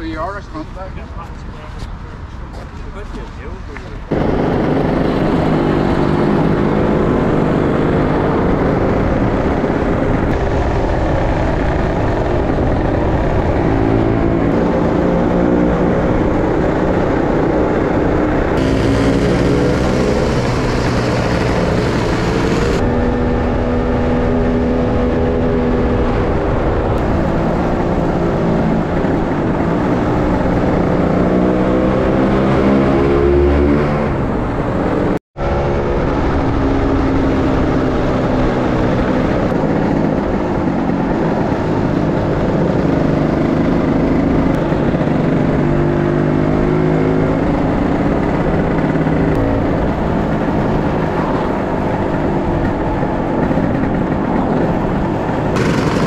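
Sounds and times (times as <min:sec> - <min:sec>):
wind rushing over microphone: 0:00.0 - 0:56.0
scooter engine running: 0:04.1 - 0:13.4, 0:18.6 - 0:23.0, 0:47.9 - 0:56.0.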